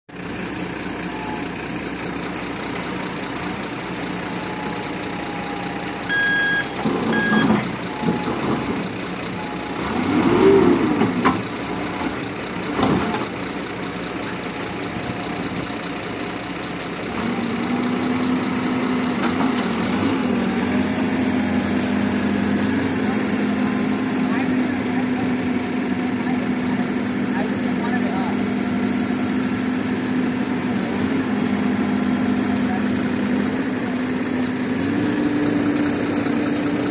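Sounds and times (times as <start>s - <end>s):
diesel engine revving: 0.1s - 36.9s
short beeps: 1.1s - 1.5s, 4.4s - 8.5s.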